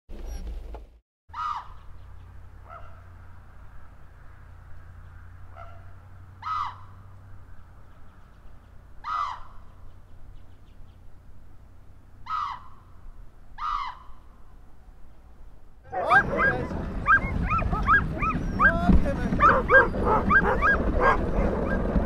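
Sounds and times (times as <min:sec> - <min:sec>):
raven calling: 0:01.3 - 0:02.0, 0:05.5 - 0:07.1, 0:09.0 - 0:10.0, 0:12.2 - 0:13.0, 0:13.6 - 0:14.4.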